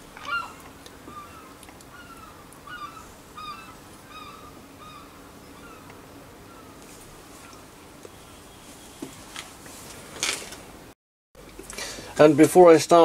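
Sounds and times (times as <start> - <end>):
bird chirping: 0.2 - 6.8.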